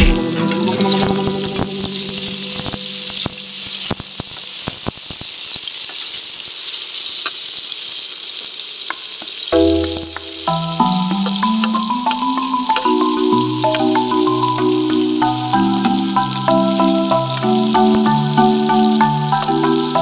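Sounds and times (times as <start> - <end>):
background music: 0.0 - 3.6, 9.6 - 20.0
onions sizzling in oil: 0.1 - 20.0.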